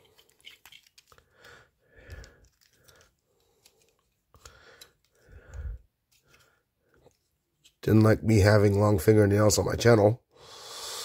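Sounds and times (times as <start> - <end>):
plastic toy parts clicking: 0.0 - 1.3, 2.1 - 5.2.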